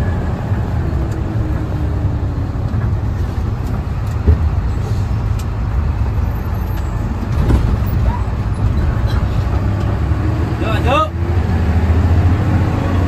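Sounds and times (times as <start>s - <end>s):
bus engine low rumble: 0.0s - 13.0s
bus bump: 2.6s - 5.8s, 6.7s - 10.4s.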